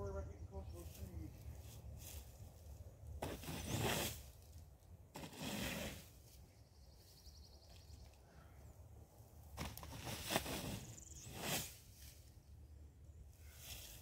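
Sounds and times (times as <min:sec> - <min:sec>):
bar scraping against plywood: 0:03.2 - 0:04.2, 0:05.2 - 0:06.1.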